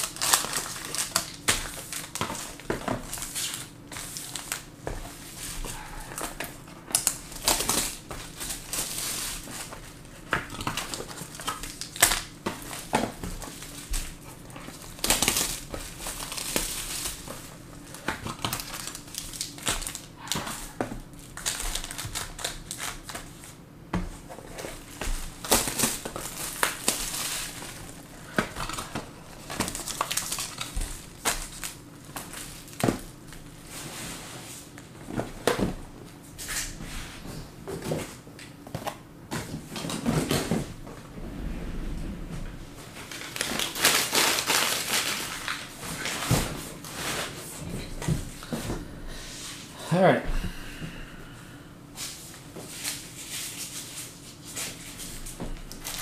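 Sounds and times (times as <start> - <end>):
plastic wrap crinkling: 0.0 - 23.6, 24.4 - 33.5, 42.9 - 47.4, 52.8 - 56.0.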